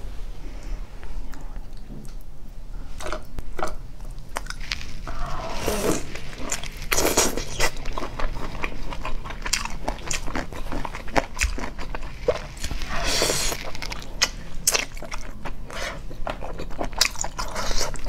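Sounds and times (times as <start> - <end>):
biting and chewing mouth sounds: 3.0 - 18.0.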